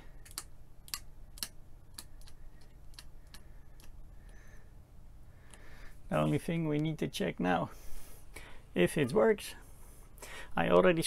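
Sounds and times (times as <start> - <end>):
rotary switch detent clicks: 0.2 - 4.4.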